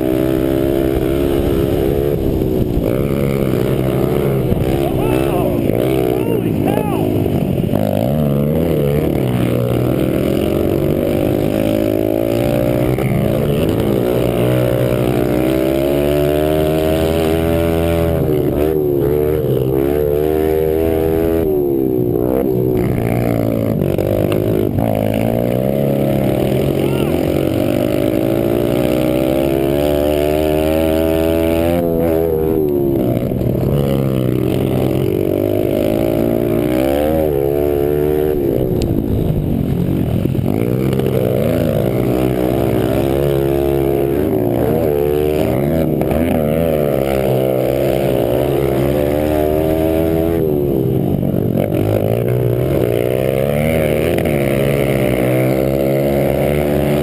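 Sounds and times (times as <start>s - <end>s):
pit bike engine revving: 0.0s - 57.0s.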